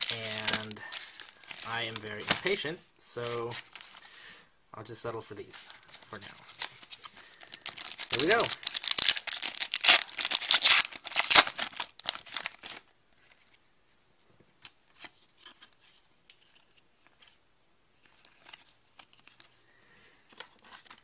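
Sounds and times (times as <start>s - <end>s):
cards clicking and rustling: 0.0s - 2.6s, 6.6s - 13.3s
foil wrapper tearing and crinkling: 0.0s - 2.6s, 6.5s - 12.8s.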